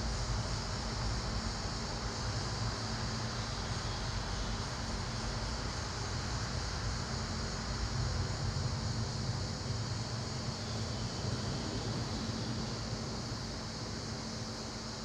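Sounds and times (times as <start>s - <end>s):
faint hum: 0.0s - 15.0s
low rumble and hiss: 0.0s - 15.0s.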